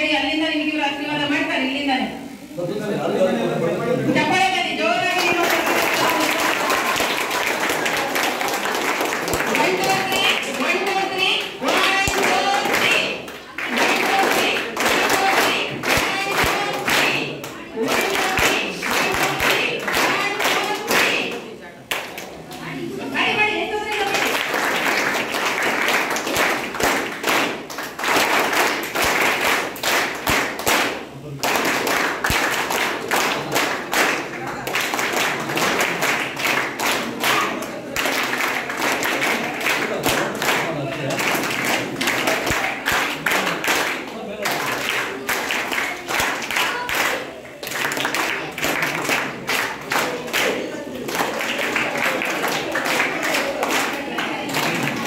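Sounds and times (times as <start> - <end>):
small group clapping: 4.3 - 55.0
voices: 7.6 - 24.6.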